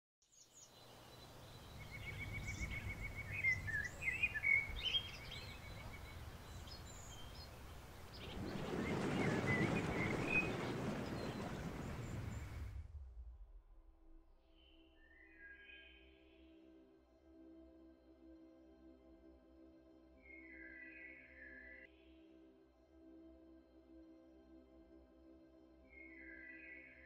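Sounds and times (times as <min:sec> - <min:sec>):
songbirds chirping: 0:00.2 - 0:12.8
low steady rumble: 0:01.6 - 0:14.5
loud rushing noise: 0:08.1 - 0:13.5.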